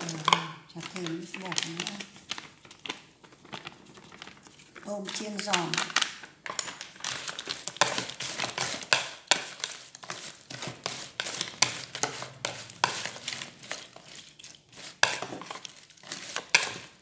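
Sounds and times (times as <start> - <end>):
chopsticks scraping plastic bowl: 7.0 - 17.0.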